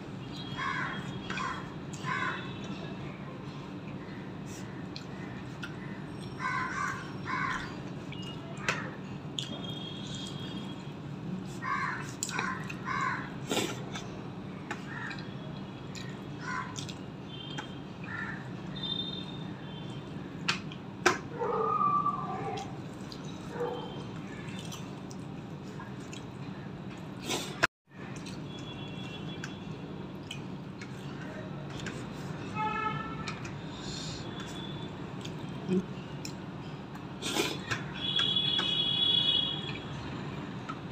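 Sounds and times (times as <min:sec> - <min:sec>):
crows cawing: 0:00.6 - 0:02.5, 0:06.4 - 0:07.8, 0:11.6 - 0:13.3, 0:18.1 - 0:18.5
chewing: 0:03.8 - 0:08.8, 0:11.5 - 0:12.9, 0:15.9 - 0:18.2, 0:22.4 - 0:28.4, 0:30.1 - 0:32.2.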